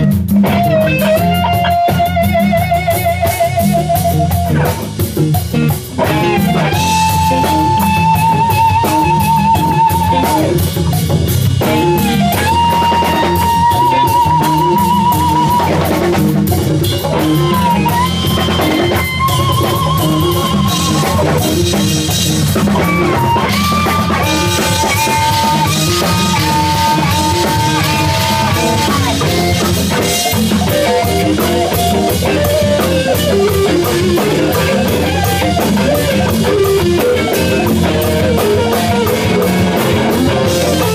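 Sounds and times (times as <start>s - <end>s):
bass guitar: 0.0s - 40.9s
busy drum kit: 0.0s - 40.9s
electric guitar lead: 0.0s - 40.9s.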